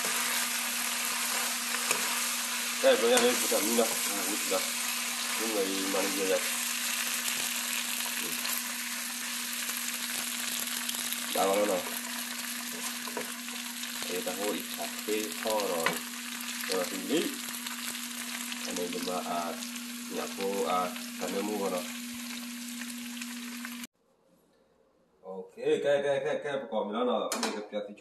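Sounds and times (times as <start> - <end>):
metal spoon scraping a pan: 0.0 - 6.3
meat sizzling in a frying pan: 0.0 - 23.9.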